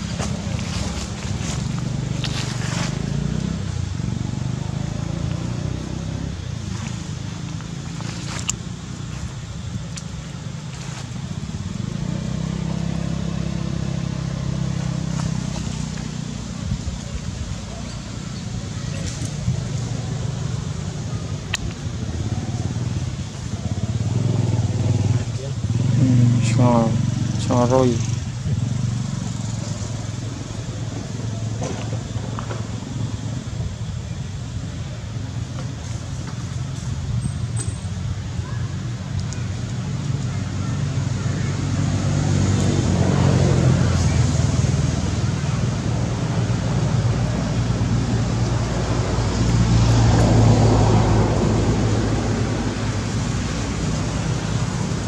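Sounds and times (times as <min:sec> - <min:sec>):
engine humming: 0:00.0 - 0:55.0.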